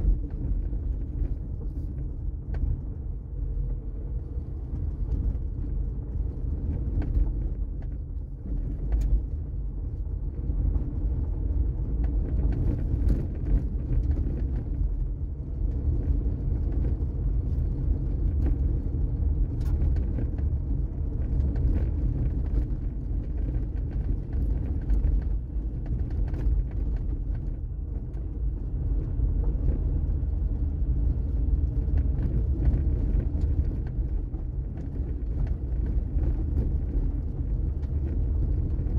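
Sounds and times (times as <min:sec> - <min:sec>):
car road and engine rumble: 0:00.0 - 0:38.9.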